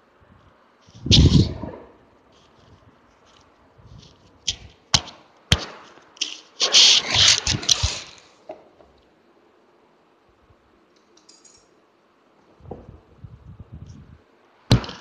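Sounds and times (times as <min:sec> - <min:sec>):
rustling: 0:02.2 - 0:04.9.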